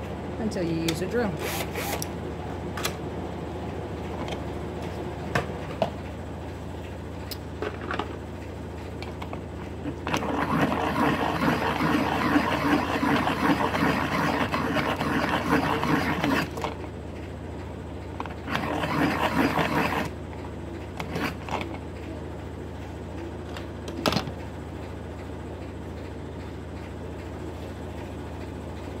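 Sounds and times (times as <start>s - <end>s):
pencil sharpener grinding: 1.4s - 2.1s, 10.0s - 16.7s, 18.3s - 20.2s, 21.0s - 21.7s.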